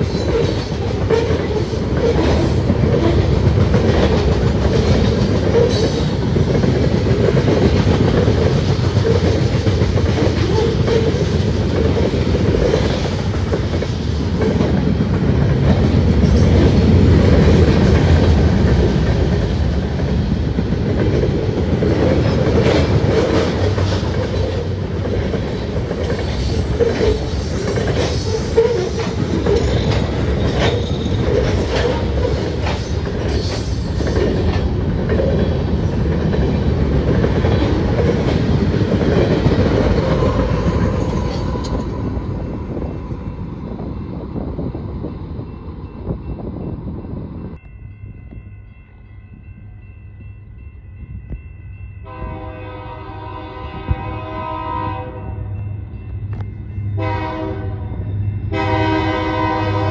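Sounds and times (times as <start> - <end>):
wheels clickety-clack: 0.0 - 42.1
freight train wheels rumbling on rail: 0.0 - 59.9.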